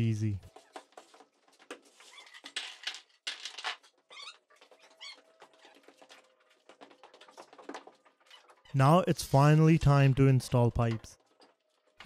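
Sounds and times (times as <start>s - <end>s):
short squeaky chirps: 4.1s - 6.0s.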